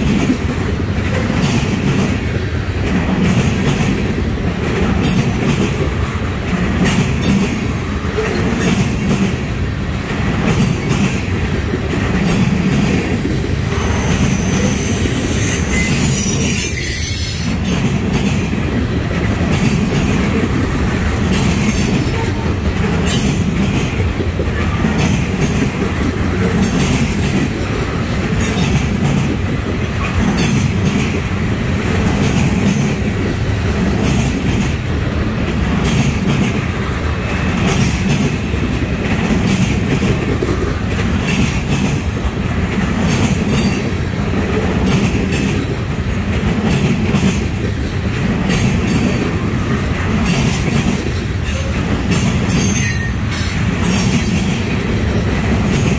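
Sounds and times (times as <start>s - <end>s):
steel wheels rumbling on rail: 0.0s - 55.9s
wheels clicking over rail joints: 0.0s - 55.9s.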